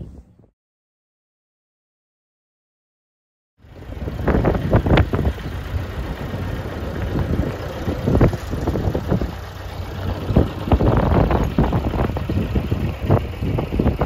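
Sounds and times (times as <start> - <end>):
diesel engine running at low revs: 3.6 - 14.0.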